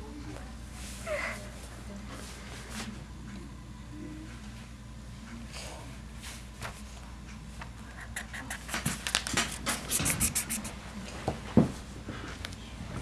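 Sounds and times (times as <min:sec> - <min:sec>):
marker scribbling on paper: 0:08.0 - 0:10.7.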